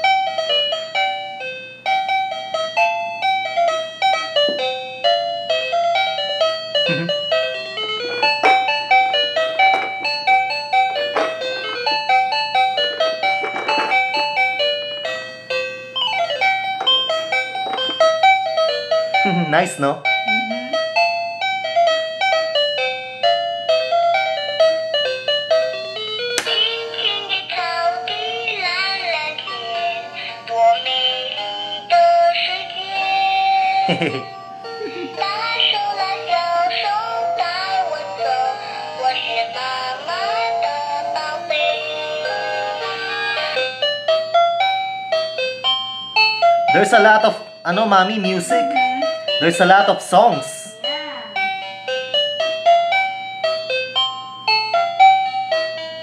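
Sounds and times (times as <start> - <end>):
electronic toy melody: 0.0 - 56.0
electronic toy tune with synthesized voice: 20.2 - 20.8, 46.7 - 49.8.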